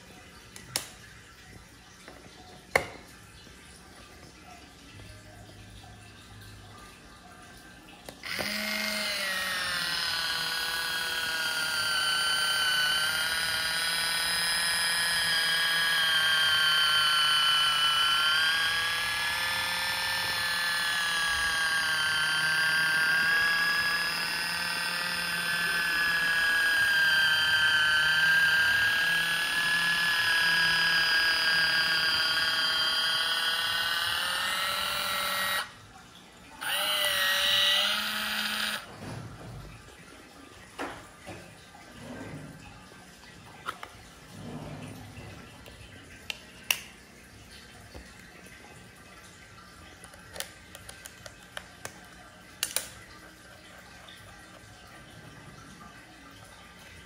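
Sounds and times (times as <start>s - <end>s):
electric can opener motor whining: 8.1s - 35.8s, 36.6s - 39.5s, 43.6s - 45.0s, 50.0s - 52.0s, 52.6s - 53.0s.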